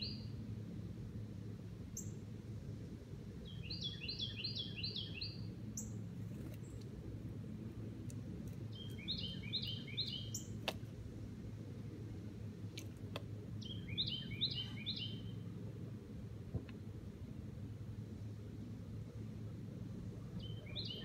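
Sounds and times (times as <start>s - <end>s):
songbird singing: 0.0s - 0.6s, 1.9s - 2.3s, 3.4s - 6.9s, 8.5s - 10.8s, 12.8s - 15.9s, 19.6s - 21.0s
low background rumble: 0.0s - 21.0s.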